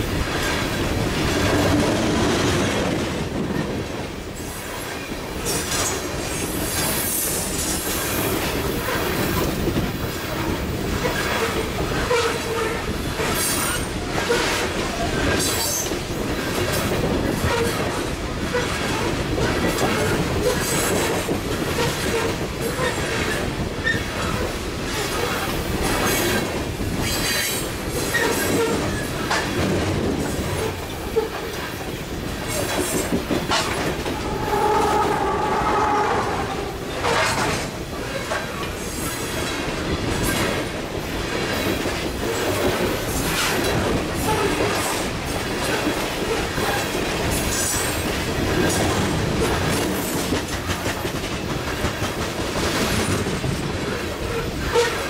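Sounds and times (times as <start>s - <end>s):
train wheels rumbling on rail: 0.0s - 55.0s
clanks at rail joints: 4.4s - 40.7s
wheel squeal: 33.4s - 37.6s.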